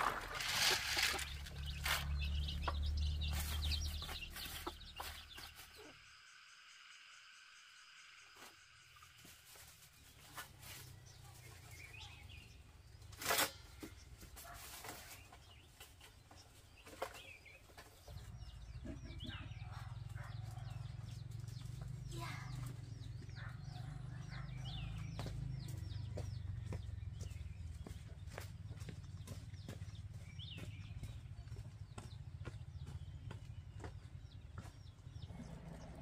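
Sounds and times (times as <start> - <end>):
chickens clucking: 0.0 - 6.0
chicks peeping: 0.0 - 6.5.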